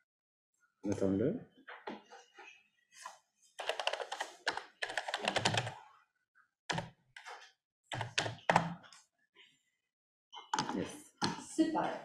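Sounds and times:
keyboard typing: 0:03.6 - 0:05.8, 0:06.7 - 0:08.9.

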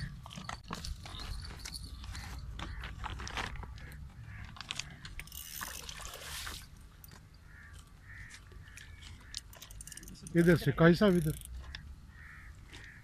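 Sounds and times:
fishing reel clicking: 0:05.2 - 0:06.2, 0:09.4 - 0:11.8
fish splashing in water: 0:05.6 - 0:06.8.

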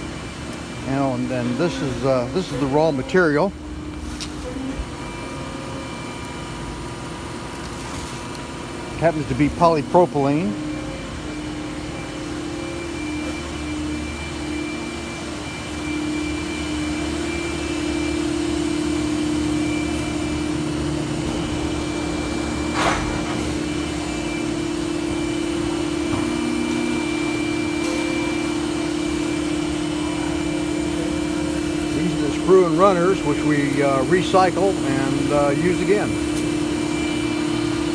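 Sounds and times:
machine humming with high whine: 0:00.0 - 0:37.9.

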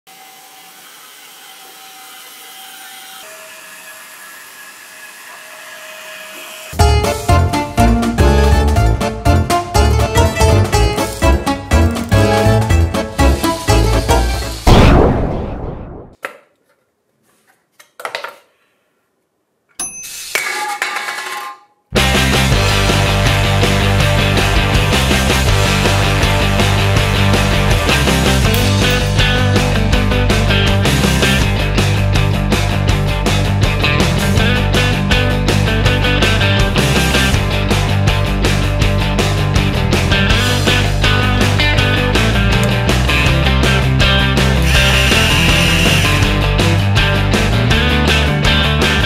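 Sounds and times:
small electric motor whining: 0:00.1 - 0:06.8, 0:44.6 - 0:46.3
loud rock music: 0:06.8 - 0:14.7, 0:22.0 - 0:49.0
crash sound effect ringing: 0:14.7 - 0:16.2.

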